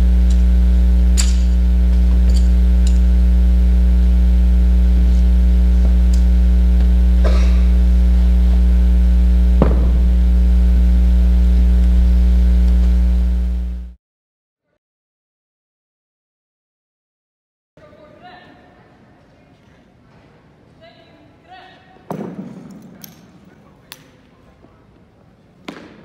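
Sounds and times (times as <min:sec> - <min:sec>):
electrical mains hum: 0:00.0 - 0:14.0
thud: 0:09.6 - 0:10.2.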